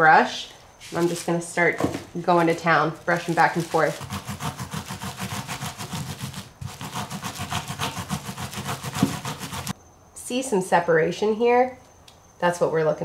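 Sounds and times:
wire brush scrubbing: 2.2s - 9.8s.

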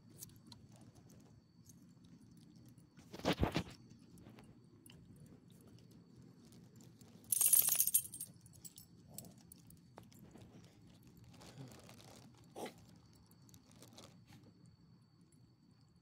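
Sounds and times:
faint crunches and ticks: 0.0s - 15.5s
dog collar jingling: 7.3s - 8.8s.

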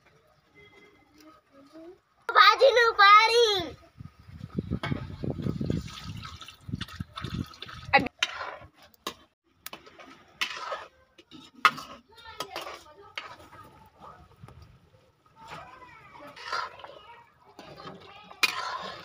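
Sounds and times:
liquid pouring: 5.4s - 8.0s.

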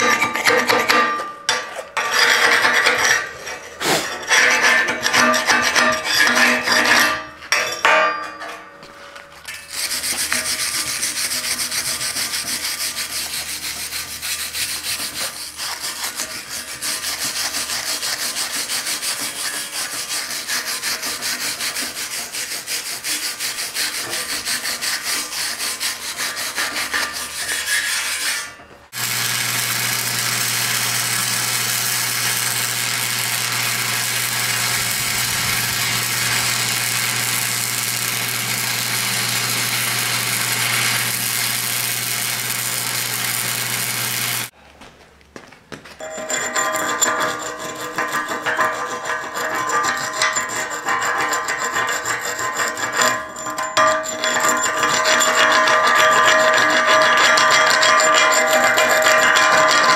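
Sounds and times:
wire brush scrubbing metal: 0.0s - 7.3s, 9.5s - 44.5s
welder arc buzzing: 28.9s - 44.5s.

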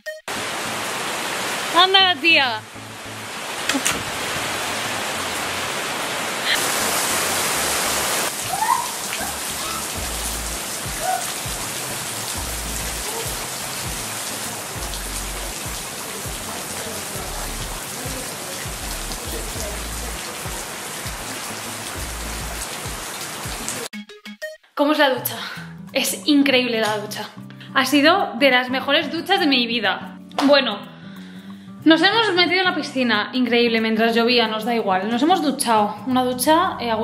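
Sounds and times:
rain on pool and paving: 0.3s - 23.9s.

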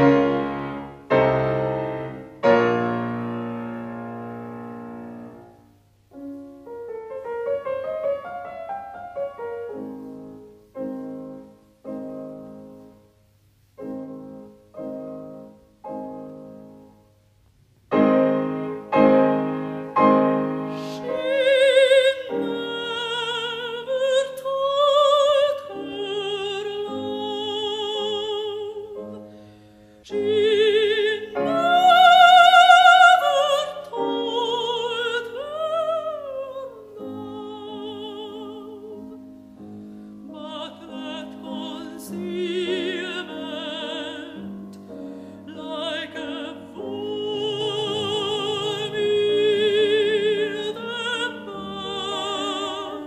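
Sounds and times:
solo piano chords: 0.0s - 13.2s, 13.8s - 53.0s
contralto voice singing with vibrato: 19.3s - 29.2s, 30.0s - 39.4s, 40.2s - 44.6s, 45.4s - 53.0s.

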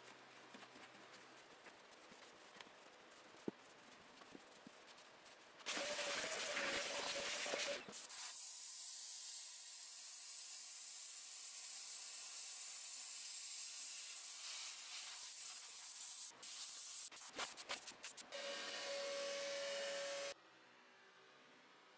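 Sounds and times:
steam cleaner hissing: 5.7s - 9.2s, 11.6s - 17.1s.

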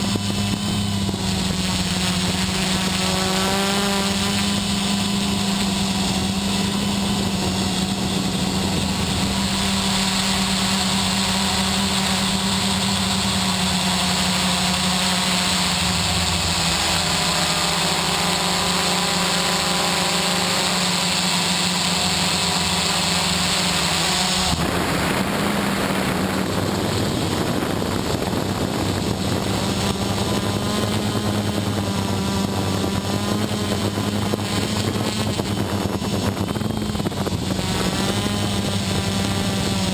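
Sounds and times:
quadcopter motors and propellers: 0.0s - 39.9s.

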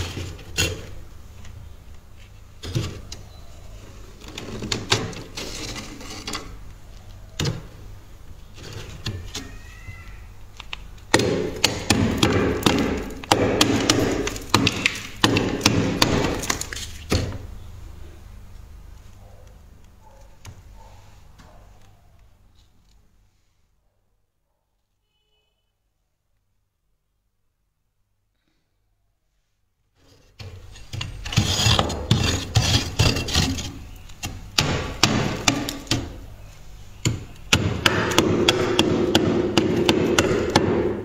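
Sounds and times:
scraping ice off freezer: 3.8s - 6.6s, 30.0s - 36.2s.

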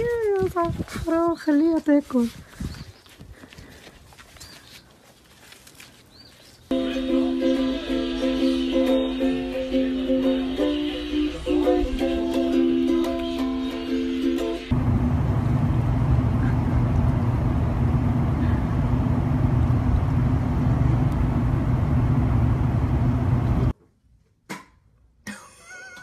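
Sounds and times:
engine rumbling: 8.8s - 23.7s.

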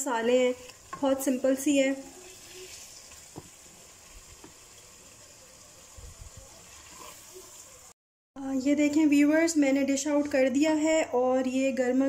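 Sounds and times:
curry sizzling in pot: 0.0s - 8.0s
spatula tapping and scraping pot: 0.8s - 1.3s.

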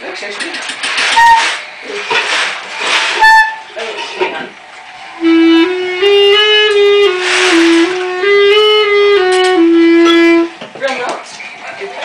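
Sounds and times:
clarinet playing held notes: 1.1s - 1.6s, 3.2s - 3.7s, 5.2s - 10.6s.

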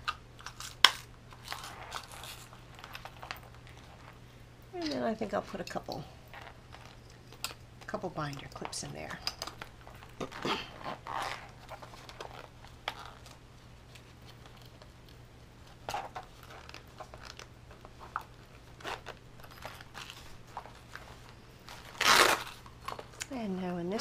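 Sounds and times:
plastic pouch crinkling: 0.4s - 4.2s, 6.3s - 7.6s, 9.4s - 23.3s.

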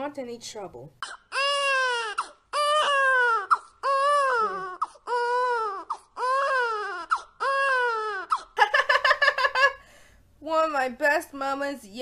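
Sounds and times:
child wailing: 1.4s - 8.4s.

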